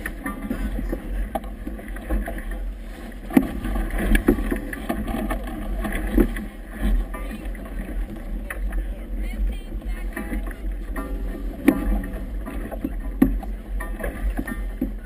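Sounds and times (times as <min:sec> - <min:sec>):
low rumble: 0:00.0 - 0:15.0
water slapping against hull: 0:00.0 - 0:15.0.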